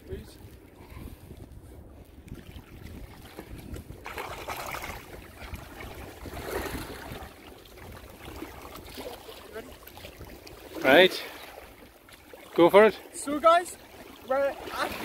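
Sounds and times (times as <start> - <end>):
wind rumble on microphone: 0.0 - 10.8
seawater sloshing against rock: 0.3 - 15.0.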